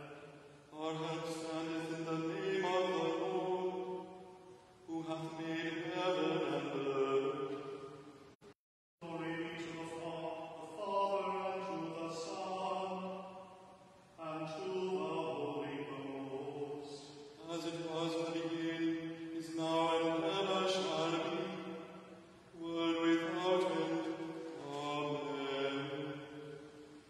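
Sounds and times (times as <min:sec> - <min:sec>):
man singing liturgical chant: 0:00.0 - 0:08.0, 0:09.0 - 0:13.6, 0:14.2 - 0:27.0.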